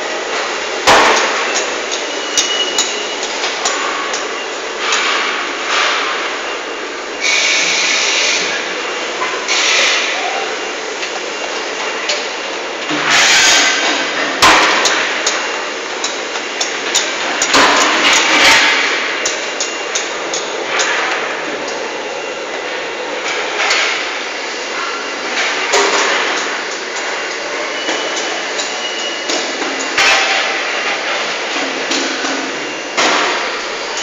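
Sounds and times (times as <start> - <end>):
factory work clatter: 0.0 - 34.0.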